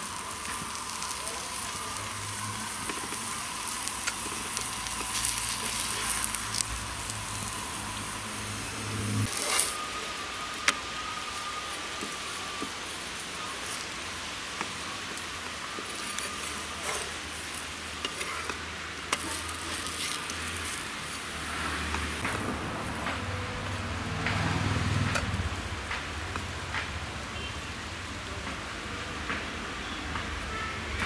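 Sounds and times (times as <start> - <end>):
flatbread sizzling on hot iron: 0.0 - 27.6
steel spatula tapping and scraping: 14.6 - 20.8.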